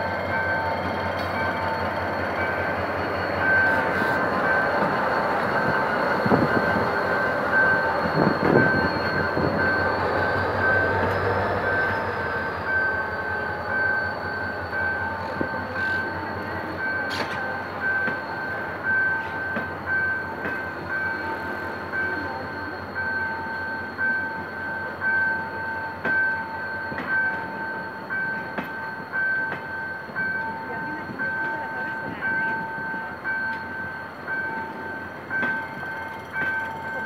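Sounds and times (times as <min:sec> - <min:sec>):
diesel locomotive engine rumbling: 0:00.0 - 0:37.0
level crossing signal beeping: 0:00.0 - 0:37.0
train wheels on rails: 0:00.0 - 0:37.0
high wheel squeal: 0:00.1 - 0:19.7.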